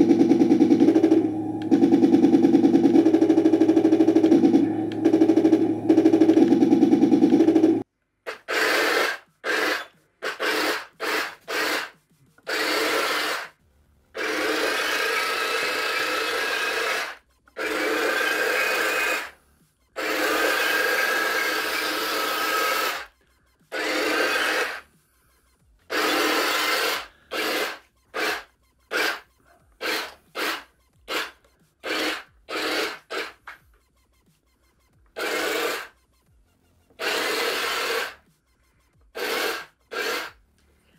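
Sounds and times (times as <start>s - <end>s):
toy tank motors whining: 14.2s - 19.4s, 20.0s - 24.8s, 25.9s - 33.6s, 36.9s - 38.2s, 39.1s - 40.4s.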